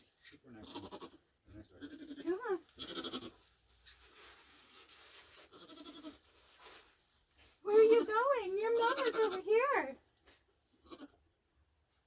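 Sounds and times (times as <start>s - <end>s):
goats bleating softly: 0.2s - 3.4s, 5.5s - 6.3s, 7.9s - 9.8s, 10.7s - 11.3s.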